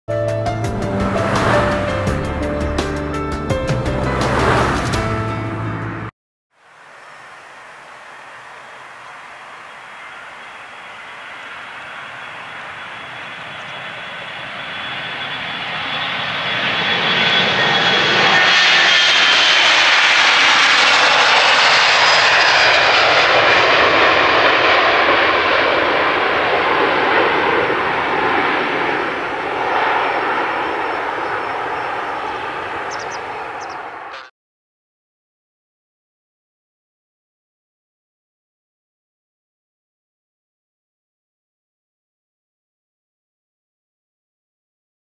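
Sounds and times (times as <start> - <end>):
high engine whine: 0.3 - 34.3
jet engines roaring at takeoff: 0.6 - 3.2, 3.8 - 6.1, 6.7 - 34.3.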